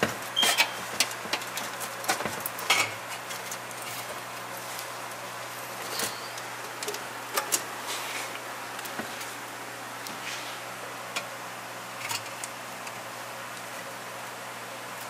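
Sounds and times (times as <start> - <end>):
workshop background hiss: 0.0 - 15.0.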